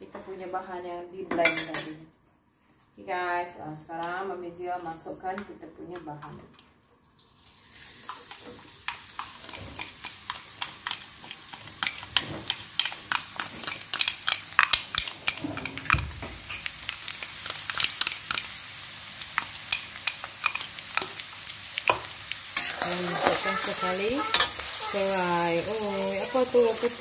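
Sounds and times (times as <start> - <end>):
paste sizzling in hot oil: 7.1 - 27.0.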